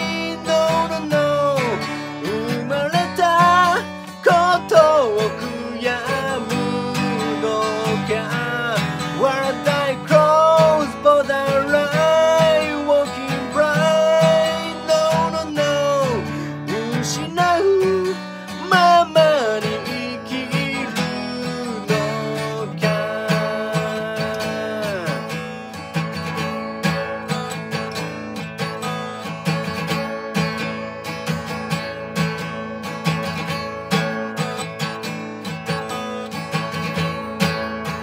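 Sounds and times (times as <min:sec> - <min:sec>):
man singing: 0:00.0 - 0:25.5
acoustic guitar strumming: 0:00.0 - 0:38.0.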